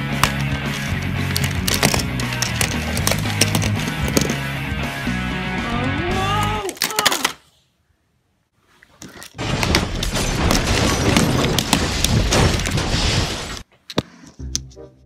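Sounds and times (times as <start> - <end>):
plastic toy trains clattering: 0.2 - 4.4.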